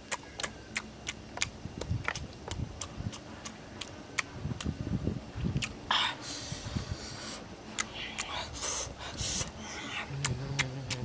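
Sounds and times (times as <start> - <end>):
wet lip smacks while chewing: 0.0 - 4.7, 7.8 - 8.4.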